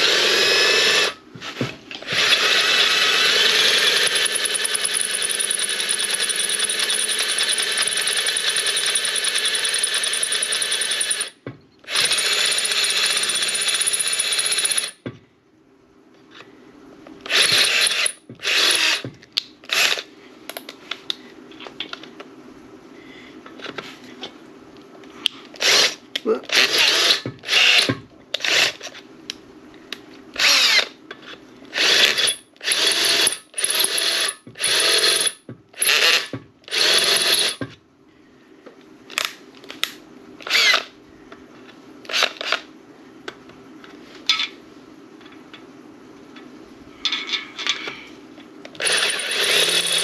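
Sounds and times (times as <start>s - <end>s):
power drill drilling into metal: 0.0s - 1.2s, 2.0s - 11.3s, 11.9s - 15.0s, 17.3s - 19.0s, 26.5s - 28.7s, 30.4s - 30.9s, 31.8s - 37.6s, 48.8s - 50.0s.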